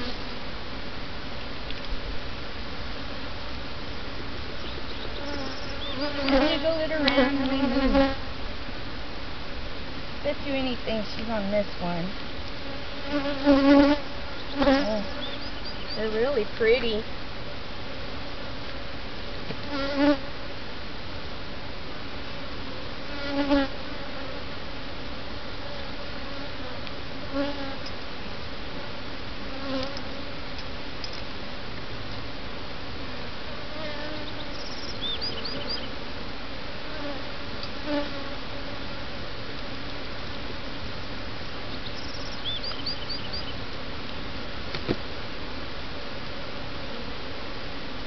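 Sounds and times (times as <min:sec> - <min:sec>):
honeybees buzzing: 0:00.0 - 0:01.4, 0:02.0 - 0:20.8, 0:22.3 - 0:31.6, 0:32.3 - 0:48.0
bee flying close past: 0:05.1 - 0:08.3, 0:12.6 - 0:15.4, 0:19.6 - 0:20.3, 0:23.1 - 0:24.4, 0:25.6 - 0:27.9, 0:36.8 - 0:38.8.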